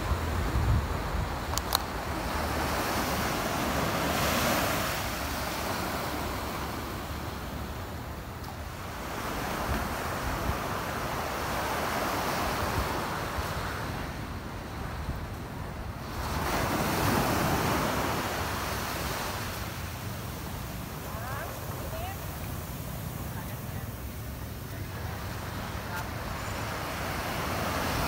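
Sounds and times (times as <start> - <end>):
wind rumbling on microphone: 0.0 - 5.8
small waves breaking on beach: 0.0 - 28.0.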